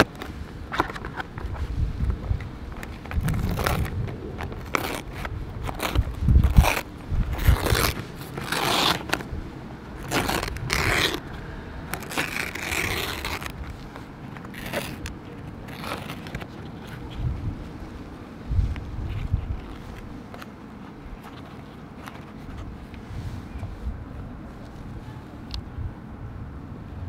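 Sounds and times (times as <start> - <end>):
plastic film crinkling: 2.7 - 9.3, 10.0 - 11.3, 11.9 - 17.2.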